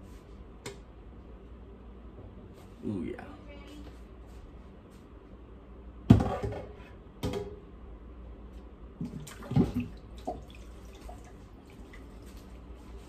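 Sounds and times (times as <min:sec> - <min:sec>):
kitchenware knocking and clinking: 0:06.1 - 0:07.5.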